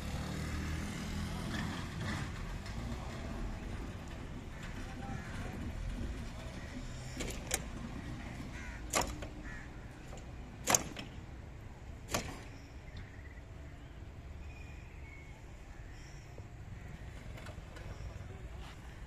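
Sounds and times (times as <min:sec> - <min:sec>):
low outdoor rumble: 0:00.0 - 0:19.0
sharp knocks: 0:08.8 - 0:09.4, 0:10.1 - 0:11.2, 0:12.1 - 0:12.6.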